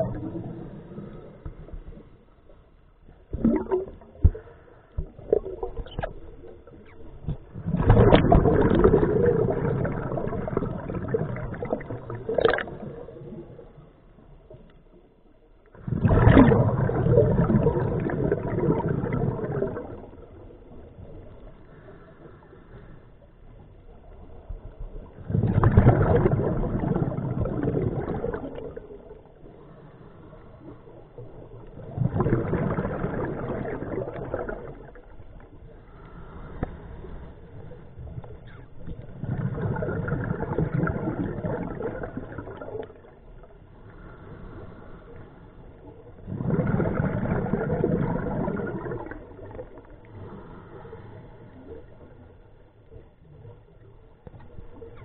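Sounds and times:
diver exhaling bubbles: 0.0s - 2.0s, 3.3s - 13.6s, 15.8s - 20.5s, 25.2s - 29.5s, 31.2s - 35.2s, 38.4s - 43.3s, 46.1s - 52.0s.

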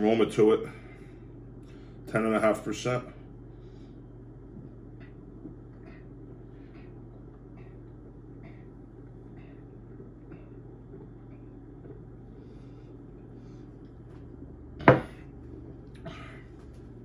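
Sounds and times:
glass set down on wooden table: 14.8s - 15.2s.

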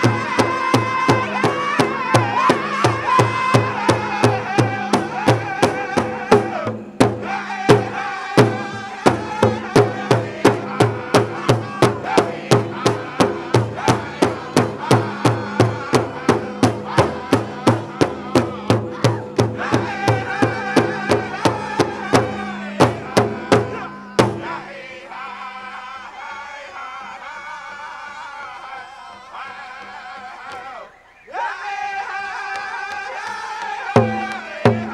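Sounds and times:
big drum beating: 0.0s - 24.6s, 34.0s - 34.9s
drum group singing: 0.0s - 34.9s.

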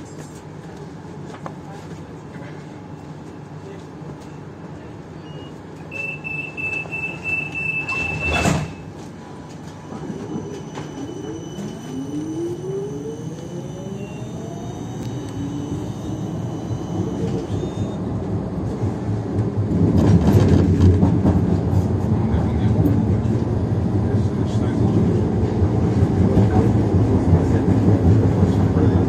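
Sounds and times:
tram motors whining: 5.1s - 19.8s
high beeping warning tone: 5.3s - 8.9s, 9.8s - 18.1s.

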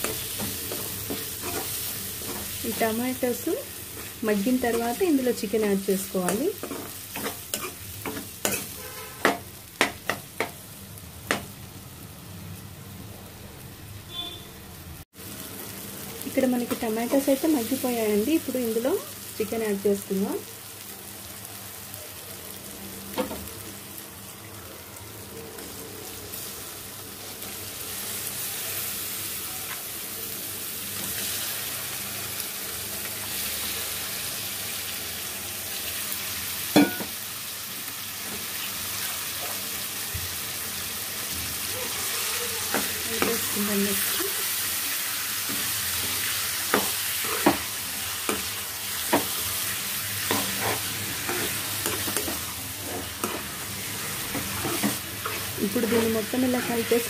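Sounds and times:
chicken sizzling in oil: 0.0s - 12.7s, 15.0s - 57.0s
metal spatula scraping pan: 6.6s - 9.4s.

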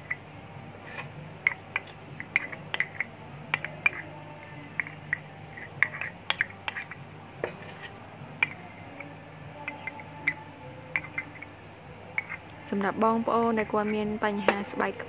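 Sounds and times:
metal spoon scooping powder: 0.8s - 12.6s
spoon clicking against jar: 1.4s - 4.1s, 4.8s - 7.0s, 9.6s - 11.5s.

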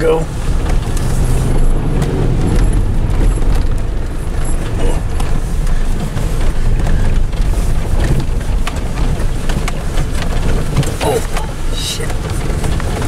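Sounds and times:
car body knocks and rattles: 0.0s - 13.0s
engine and tyres rumbling: 0.0s - 13.0s.

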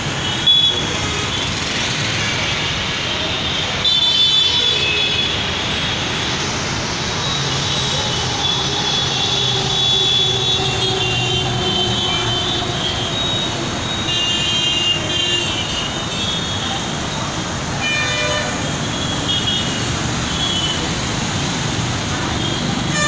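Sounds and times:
city road traffic: 0.0s - 23.0s
vehicle horns honking: 9.2s - 16.8s, 17.8s - 20.9s, 22.4s - 23.0s.

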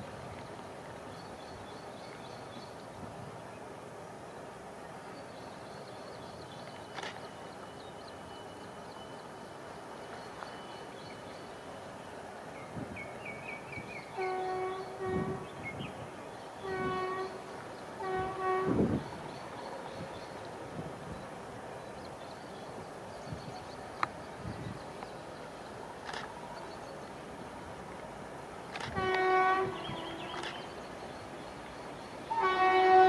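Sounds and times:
locomotive air horn blasts: 14.2s - 15.5s, 16.6s - 17.4s, 18.0s - 19.0s, 28.9s - 30.4s, 32.3s - 33.0s.

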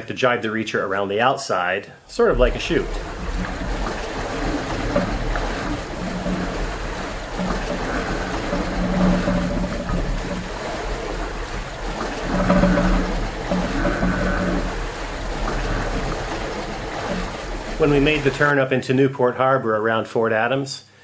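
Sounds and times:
water rushing past a hull: 2.1s - 18.9s
wind buffeting the microphone: 2.2s - 18.5s.

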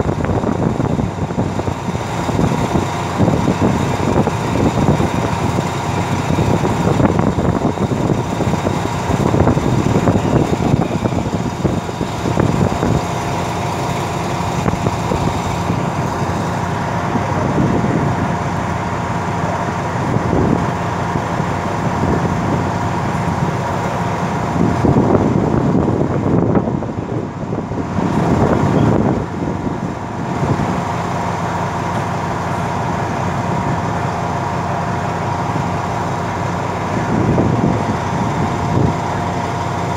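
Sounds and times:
diesel locomotive idling: 0.0s - 39.9s.

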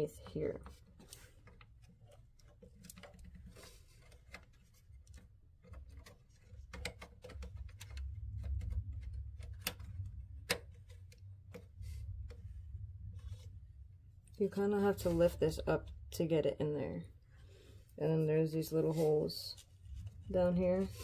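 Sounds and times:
low rumble of handling: 0.0s - 21.0s
plastic clicks and taps: 2.4s - 11.7s.

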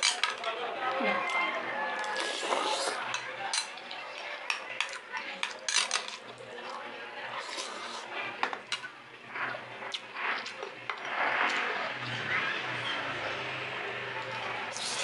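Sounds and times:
slurping and chewing: 2.0s - 3.2s, 7.3s - 8.1s, 14.2s - 15.0s.

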